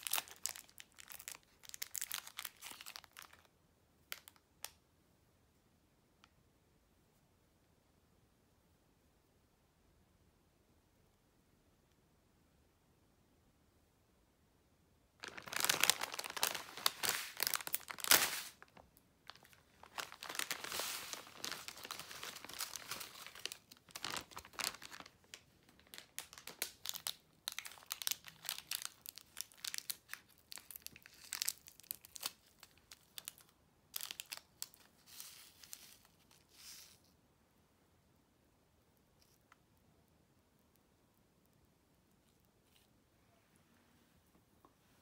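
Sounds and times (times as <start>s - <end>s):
sachet tearing open: 0.0s - 3.5s, 15.2s - 37.0s
wrappers crinkling: 0.0s - 3.5s, 15.2s - 37.0s.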